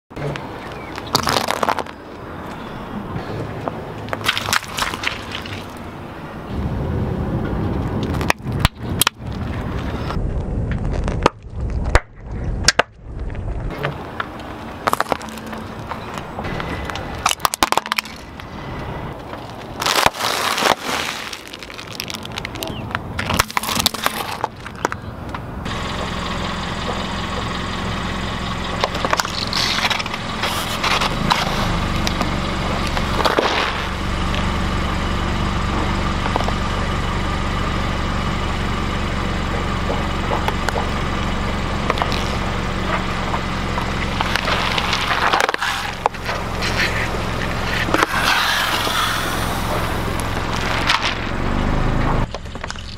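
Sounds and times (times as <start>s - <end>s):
tomatoes squashing under tyre: 0.3s - 2.0s, 19.4s - 25.1s
car engine idling: 13.7s - 20.3s, 21.2s - 52.9s
plastic cracking and snapping: 19.5s - 25.0s.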